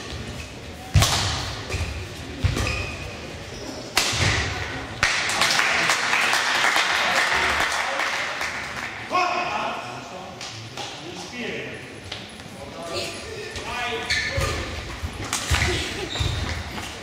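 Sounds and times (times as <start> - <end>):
spectators applauding: 5.0 - 8.9.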